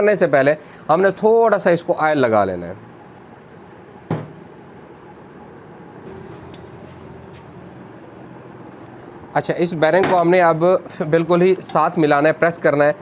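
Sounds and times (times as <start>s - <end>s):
low steady hum: 0.0s - 13.0s
sharp knock on metal engine case: 4.1s - 4.4s.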